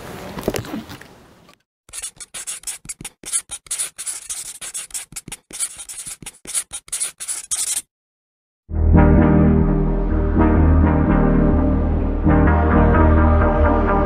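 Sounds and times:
marker pen scribbling: 0:01.9 - 0:07.9.

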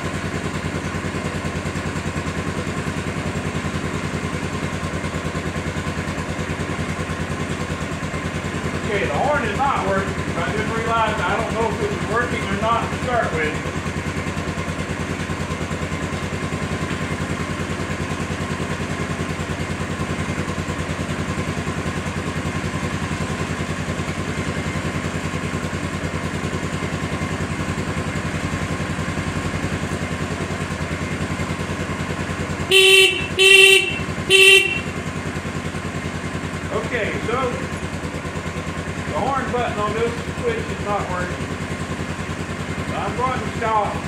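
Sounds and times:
motorcycle engine idling: 0:00.0 - 0:44.0
electric horn beeps: 0:32.7 - 0:35.0.

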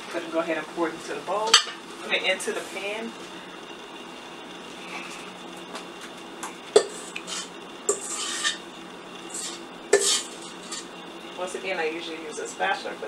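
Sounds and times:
utensil clinking on metal bowl: 0:06.8 - 0:08.6, 0:09.3 - 0:10.9
utensil scraping metal bowl: 0:06.8 - 0:10.9.

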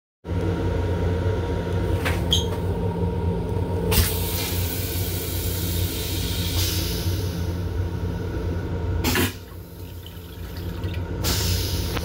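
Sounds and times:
railcar low rumble: 0:00.3 - 0:12.0
rinse water hissing: 0:09.1 - 0:12.0.

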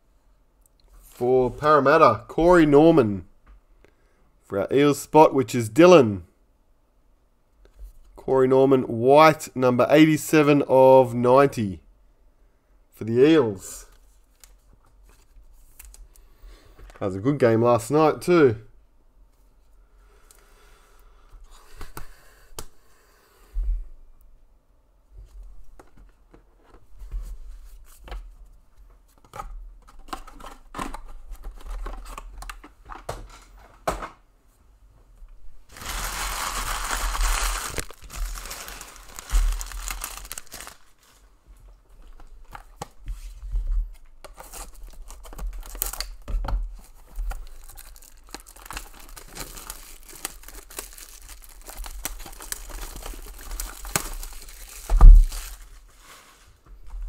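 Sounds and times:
plastic wrapping tearing and crinkling: 0:35.7 - 0:41.2, 0:44.4 - 0:55.8.

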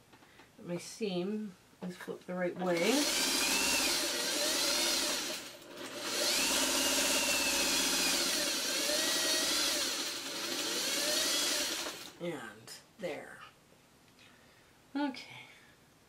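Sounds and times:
sewing machine stitching: 0:02.6 - 0:12.2.

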